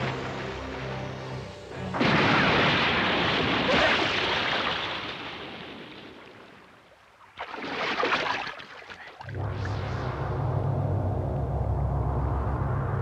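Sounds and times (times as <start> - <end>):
rushing sea water: 0.0 - 9.8.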